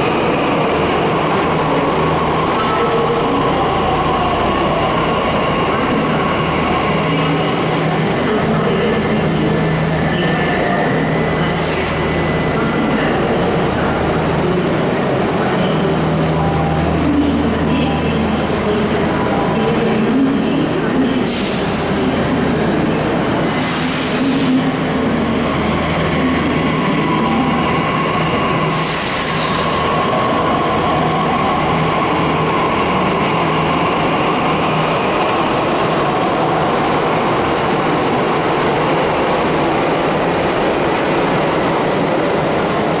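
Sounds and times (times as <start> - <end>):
train rolling rumble: 0.0 - 43.0.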